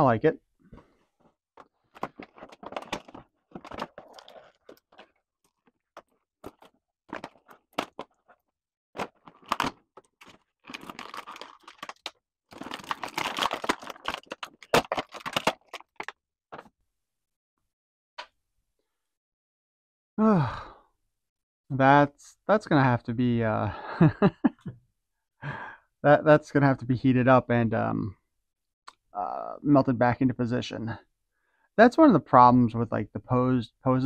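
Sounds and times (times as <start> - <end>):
plastic and cardboard crinkling: 0.8 - 16.7.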